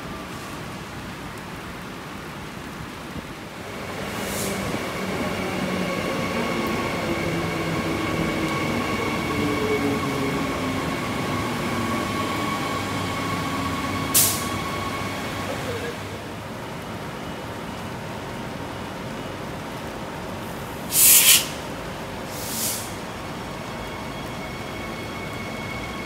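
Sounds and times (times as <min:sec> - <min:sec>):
electric train rumbling past: 0:03.5 - 0:26.0
short hiss: 0:14.2 - 0:14.6, 0:20.9 - 0:21.6, 0:22.3 - 0:23.0.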